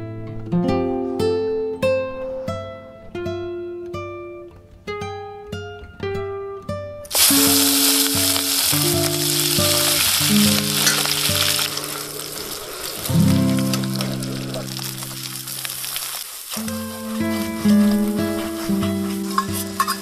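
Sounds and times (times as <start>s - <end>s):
plucked-string background music: 0.0s - 11.7s, 16.7s - 20.0s
shrimp sizzling in hot oil: 7.1s - 20.0s.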